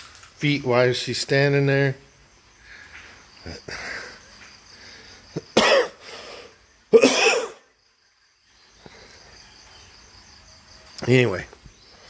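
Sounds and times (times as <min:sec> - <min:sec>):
crickets chirring: 0:00.0 - 0:12.0
person coughing: 0:05.4 - 0:06.0, 0:07.0 - 0:07.7.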